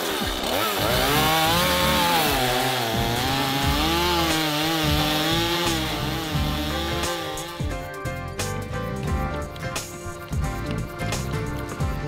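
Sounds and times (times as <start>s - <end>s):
chainsaw cutting wood: 0.0s - 7.8s.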